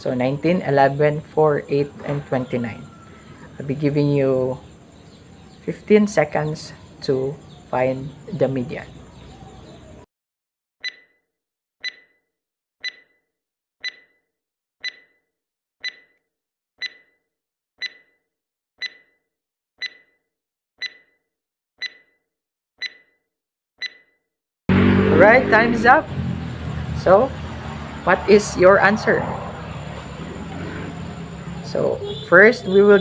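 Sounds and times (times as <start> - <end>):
countdown timer ticks: 10.8 - 11.1, 11.8 - 12.1, 12.8 - 13.2, 13.8 - 14.2, 14.8 - 15.2, 15.8 - 16.2, 16.8 - 17.2, 17.8 - 18.2, 18.8 - 19.2, 19.8 - 20.2, 20.8 - 21.2, 21.8 - 22.2, 22.8 - 23.1, 23.8 - 24.1.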